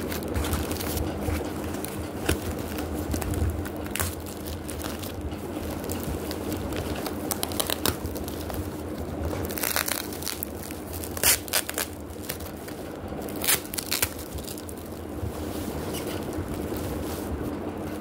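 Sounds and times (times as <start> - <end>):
plastic packaging crinkling: 0.0 - 18.0.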